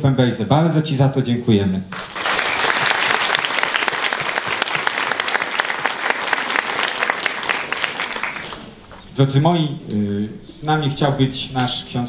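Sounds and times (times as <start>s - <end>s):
audience applauding: 1.9s - 9.0s.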